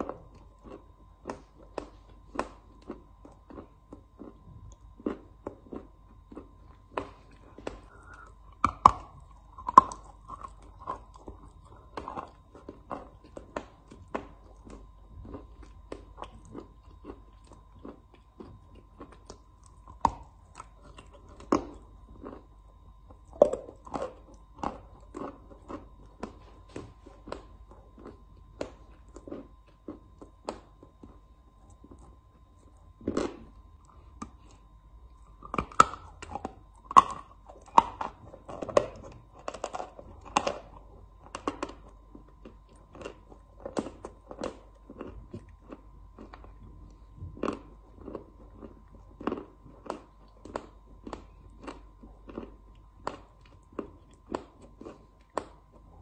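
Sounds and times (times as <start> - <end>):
chalk being chewed: 0.0 - 22.5.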